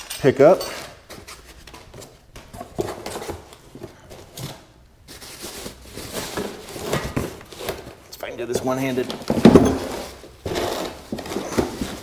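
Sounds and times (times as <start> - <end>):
wrapping rustling and crinkling: 1.1 - 8.0.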